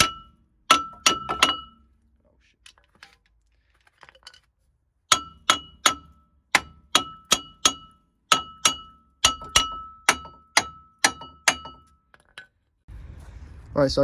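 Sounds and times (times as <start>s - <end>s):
hammer striking metal: 0.0s - 1.9s, 5.1s - 12.5s.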